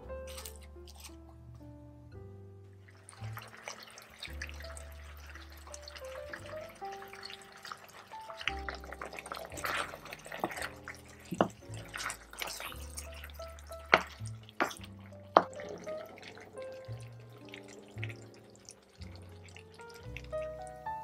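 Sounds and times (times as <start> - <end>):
soft background music: 0.0 - 21.0
wooden spoon knocking skillet: 7.2 - 16.4.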